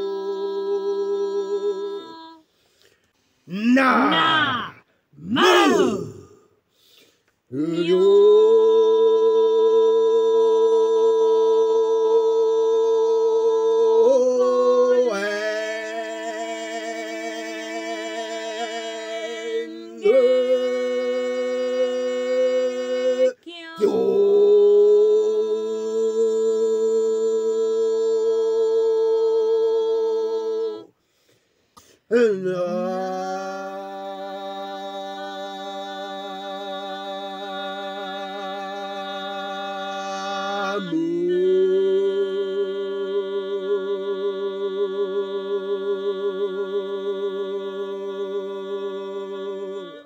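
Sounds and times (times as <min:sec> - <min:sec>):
person breathing: 0:02.4 - 0:03.5, 0:06.7 - 0:07.3, 0:31.0 - 0:32.1
person chanting long held notes: 0:16.4 - 0:30.9, 0:32.1 - 0:41.0.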